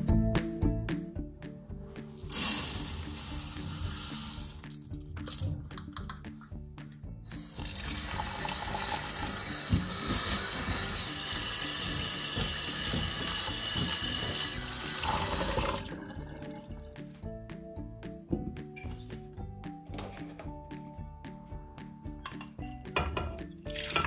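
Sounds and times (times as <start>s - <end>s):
tap running into metal sink: 7.6s - 15.8s.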